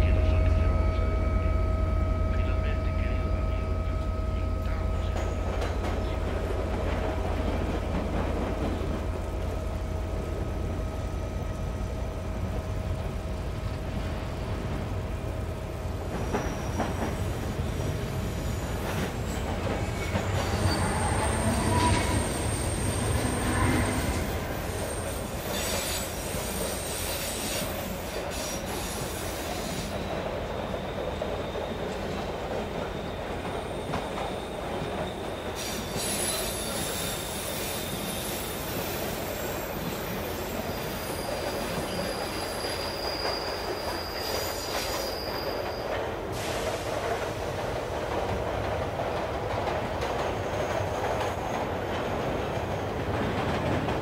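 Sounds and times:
rail clicks: 0:00.0 - 0:54.0
train rumbling on rails: 0:00.0 - 0:54.0
high wheel squeals: 0:16.0 - 0:46.8.

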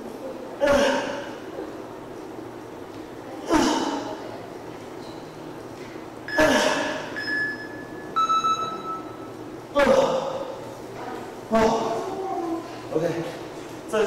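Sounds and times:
phone timer beeps: 0:07.2 - 0:09.2.

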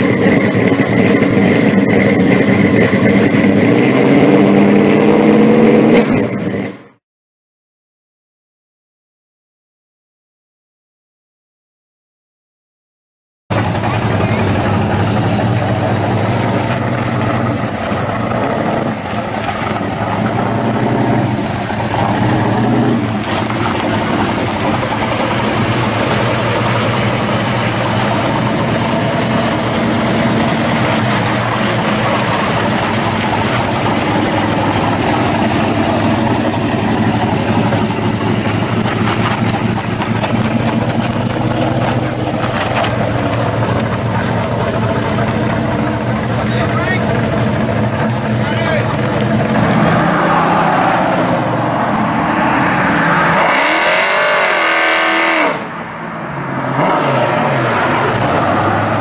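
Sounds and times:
car engine idling: 0:00.0 - 0:04.2, 0:13.5 - 0:50.3, 0:57.7 - 0:59.0.

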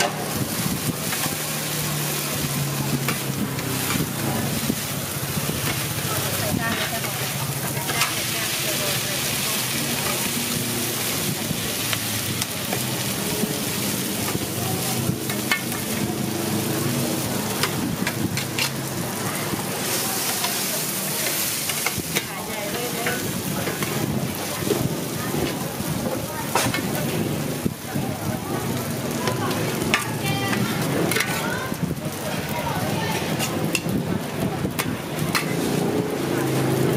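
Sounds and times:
food sizzling on a griddle: 0:00.0 - 0:36.9
metal spatulas scraping: 0:06.7 - 0:08.7, 0:17.6 - 0:18.9, 0:29.7 - 0:31.5, 0:34.8 - 0:35.9.

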